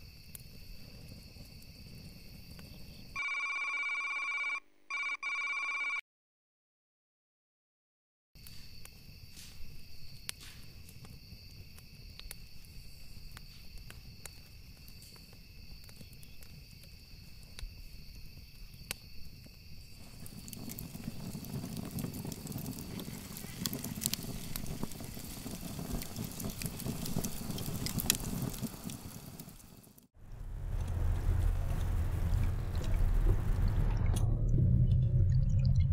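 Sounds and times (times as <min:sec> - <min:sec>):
fire crackling: 0:00.0 - 0:03.2, 0:08.4 - 0:34.2
night insects trilling: 0:00.0 - 0:04.4, 0:08.4 - 0:29.3.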